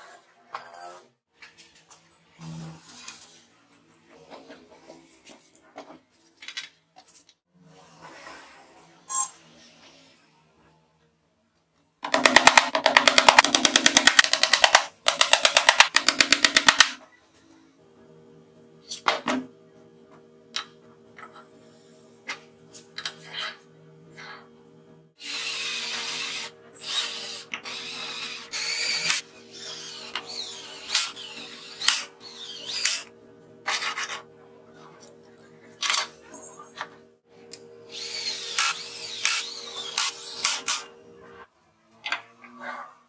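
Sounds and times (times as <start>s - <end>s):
cordless drill driving screws: 37.9s - 40.8s.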